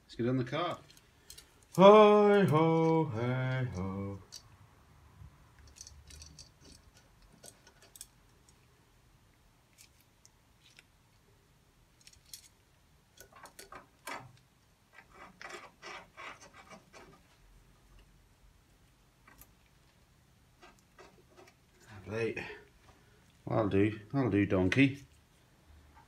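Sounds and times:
rubbing: 14.9s - 17.5s.

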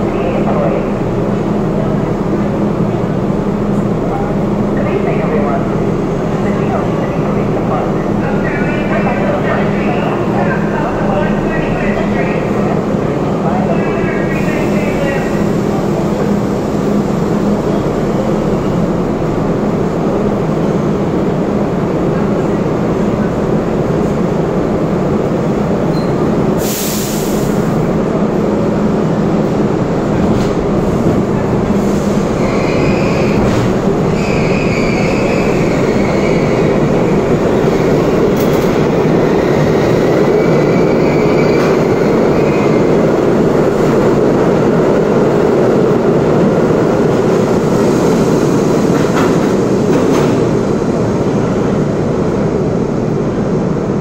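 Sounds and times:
subway train humming: 0.0s - 54.0s
train pulling out: 25.3s - 52.0s
air hiss: 26.6s - 27.7s
high wheel squeals: 32.4s - 36.7s.

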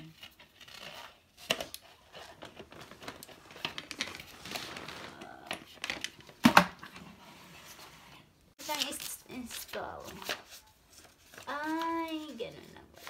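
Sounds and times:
plastic packaging crinkling: 0.4s - 6.5s.

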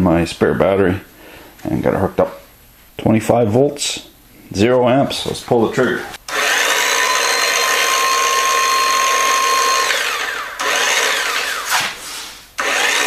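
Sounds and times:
circular saw motor whining: 6.3s - 11.8s, 12.6s - 13.0s
saw winding down: 6.3s - 11.8s, 12.6s - 13.0s.

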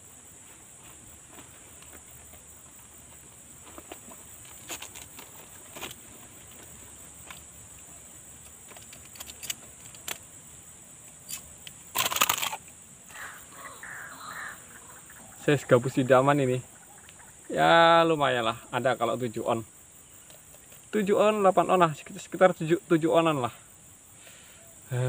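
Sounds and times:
high insect buzz: 0.0s - 25.0s
fishing gear clicking and clinking: 8.3s - 10.3s, 11.3s - 12.7s.

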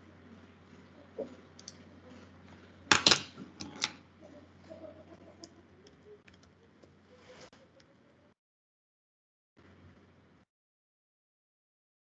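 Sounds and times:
faint steady hum: 0.0s - 8.4s.

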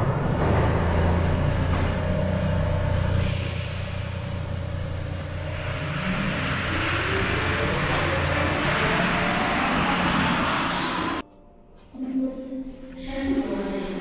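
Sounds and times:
train low hum: 0.0s - 11.2s
train whine rising in pitch: 0.7s - 11.2s
hiss: 3.1s - 5.1s.

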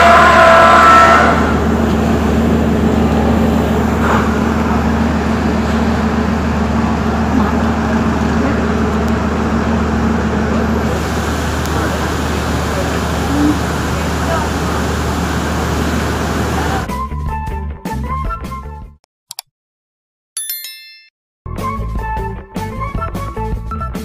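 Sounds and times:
train horn chord: 0.0s - 1.8s
diesel engine humming: 0.0s - 16.9s.

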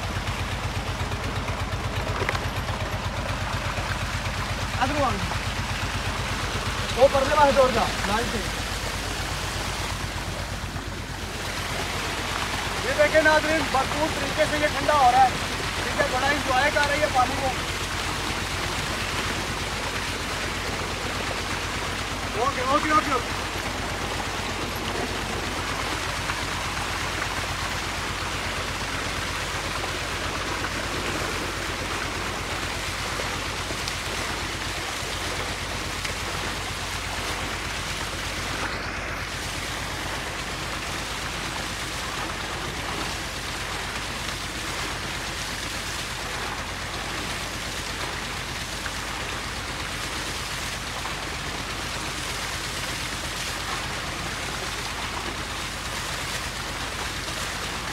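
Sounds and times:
low hum: 0.0s - 45.0s
water gushing into a tank: 0.0s - 57.9s.

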